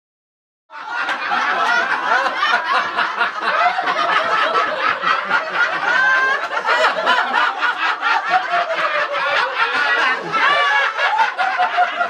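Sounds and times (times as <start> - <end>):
roomful of people laughing: 0.7 - 12.0.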